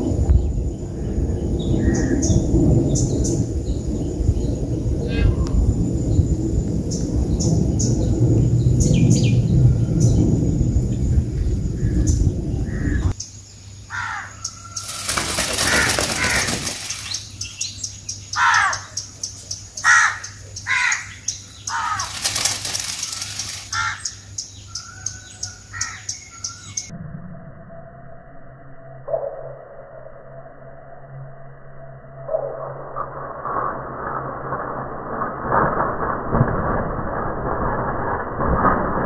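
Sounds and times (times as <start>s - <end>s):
birds chirping: 6.9s - 26.9s
rustling bursts: 14.8s - 17.5s, 21.7s - 24.1s.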